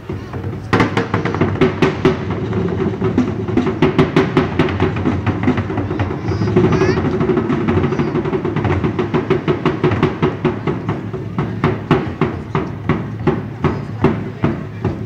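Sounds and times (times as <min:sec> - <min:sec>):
drum rumble: 0:00.0 - 0:15.0
street percussion sharp strikes: 0:00.0 - 0:15.0.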